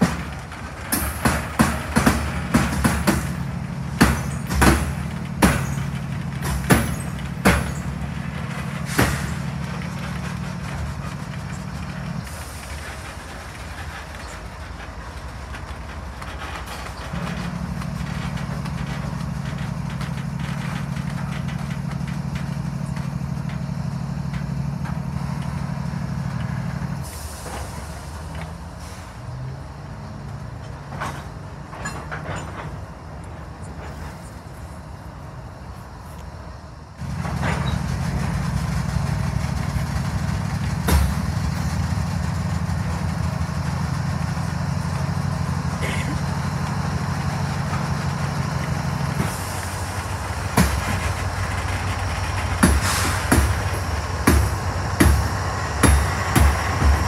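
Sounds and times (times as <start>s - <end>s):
freight train rolling by: 0.0s - 57.0s
low diesel locomotive drone: 0.0s - 57.0s
sharp metallic clanks: 49.1s - 57.0s.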